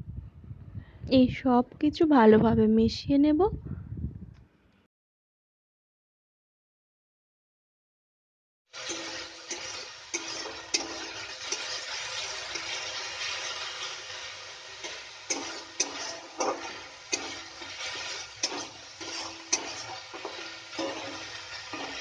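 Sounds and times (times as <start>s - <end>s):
paste sizzling in oil: 8.7s - 22.0s
metal spatula scraping pan: 8.8s - 22.0s.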